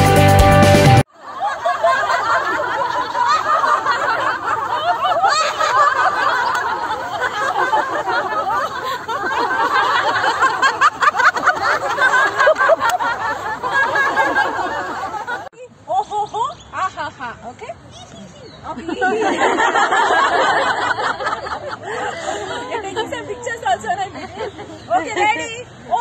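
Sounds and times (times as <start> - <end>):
group of people laughing: 1.1 - 15.5, 18.7 - 26.0.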